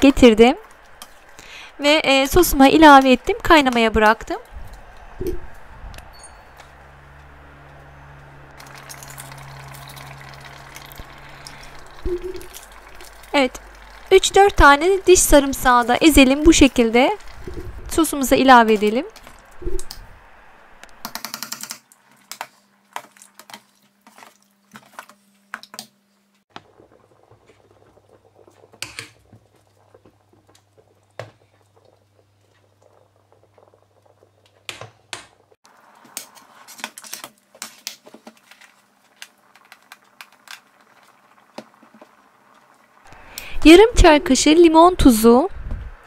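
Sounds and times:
thick sauce bubbles popping: 0:08.6 - 0:17.9, 0:26.5 - 0:36.3.

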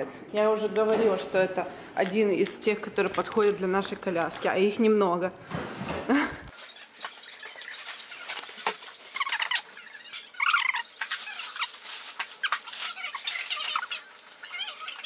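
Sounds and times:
plastic wrapping rustling: 0:00.9 - 0:04.6, 0:05.7 - 0:15.0
plastic squeaking against seat: 0:06.6 - 0:15.0.

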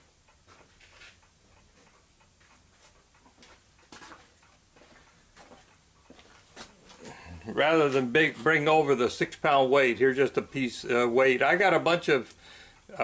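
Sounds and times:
faint clicks and knocks: 0:00.0 - 0:07.2.

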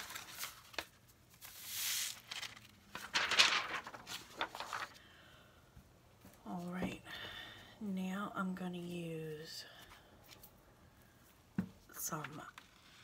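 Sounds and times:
paper rustling with light taps: 0:00.0 - 0:05.0
paper sliding on a tabletop: 0:01.4 - 0:02.4.

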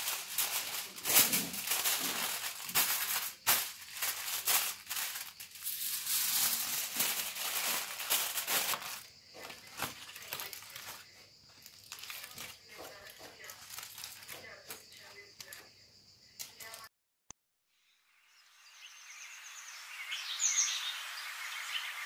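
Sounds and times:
aluminium foil crinkling: 0:00.0 - 0:15.6.

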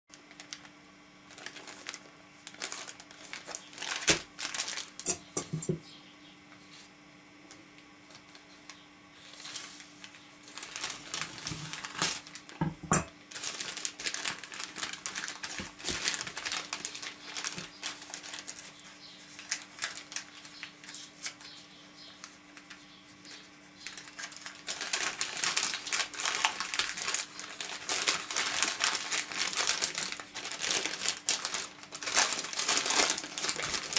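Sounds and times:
envelope crinkling and rustling: 0:00.1 - 0:05.1, 0:08.1 - 0:12.6, 0:13.3 - 0:33.9.

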